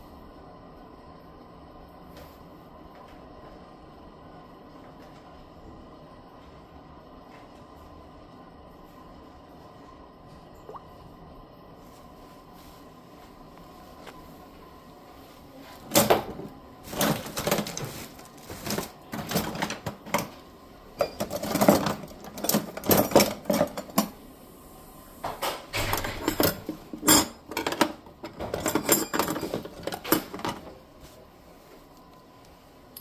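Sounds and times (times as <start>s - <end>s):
metal utensils clattering: 21.0s - 24.1s, 25.8s - 30.7s.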